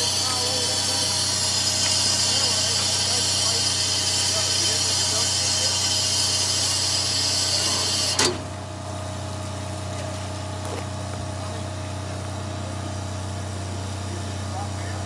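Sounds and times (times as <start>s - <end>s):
steam hissing: 0.0s - 8.3s
low locomotive hum: 0.0s - 15.0s.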